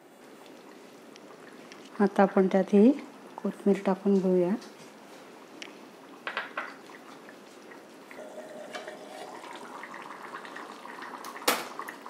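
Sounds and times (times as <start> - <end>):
curry bubbling in pot: 5.4 - 12.0.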